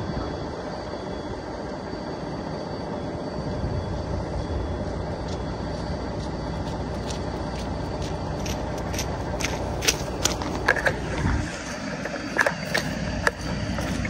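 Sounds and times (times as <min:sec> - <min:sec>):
steady low rumble: 0:00.0 - 0:14.0
footsteps crunching on icy snow: 0:05.2 - 0:14.0.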